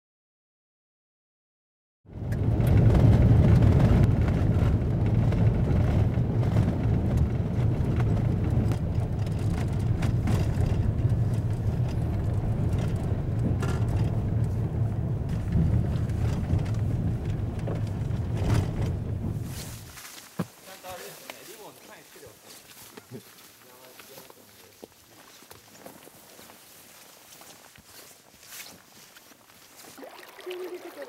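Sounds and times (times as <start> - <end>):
car engine and tyre rumble: 2.1 - 20.6
gravel clicks and knocks: 2.4 - 21.4.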